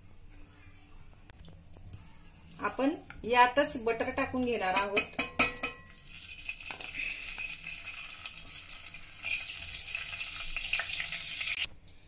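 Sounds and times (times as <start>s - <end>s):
butter sizzling in oil: 5.3s - 11.7s.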